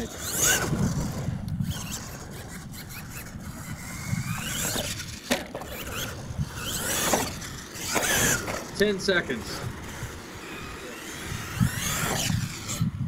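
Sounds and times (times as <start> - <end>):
toy truck motor whine: 0.0 - 13.0.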